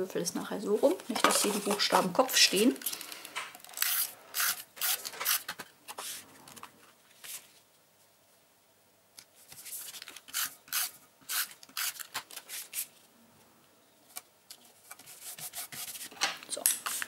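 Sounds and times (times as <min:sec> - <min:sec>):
cardstock rustling and scraping: 0:01.0 - 0:03.1, 0:03.8 - 0:07.6.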